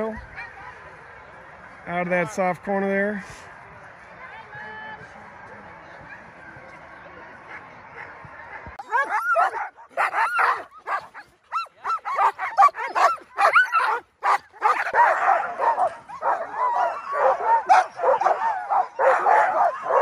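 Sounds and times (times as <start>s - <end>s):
sled dogs yipping and barking: 0.0s - 1.0s, 7.5s - 20.0s.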